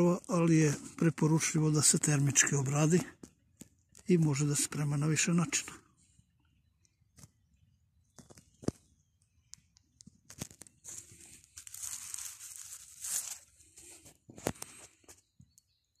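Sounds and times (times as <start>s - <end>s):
dry leaves rustling: 10.3s - 14.0s.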